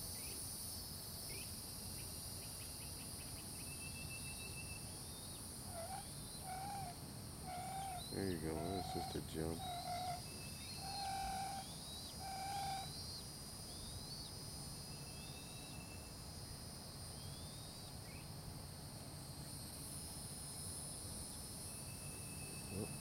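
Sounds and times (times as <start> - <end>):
high insect drone: 0.0 - 23.0
held bird notes: 5.8 - 13.0.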